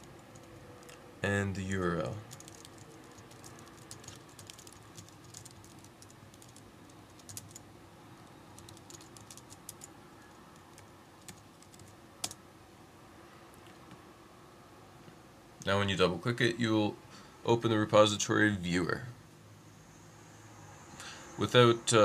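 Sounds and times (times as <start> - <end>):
keyboard typing: 0.0 - 1.0, 2.2 - 7.6, 8.2 - 12.4.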